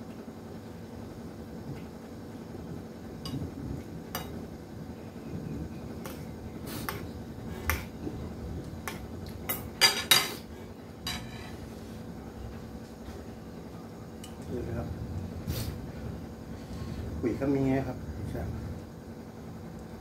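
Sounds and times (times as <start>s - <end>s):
cutlery clinking on ceramic plate: 9.5s - 10.4s, 11.0s - 11.6s.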